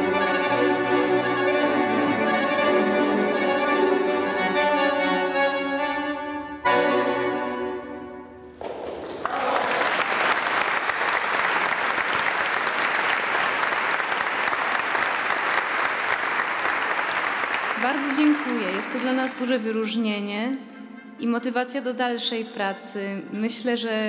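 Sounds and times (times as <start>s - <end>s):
accordion chord: 0.0s - 8.5s
audience applause: 8.6s - 19.6s.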